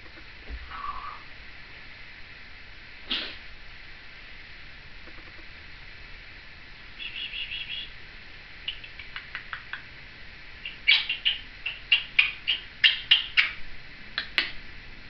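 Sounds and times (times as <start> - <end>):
parrot chirping and clicking: 5.0 - 5.4, 8.7 - 9.9, 10.6 - 13.6, 14.2 - 14.6.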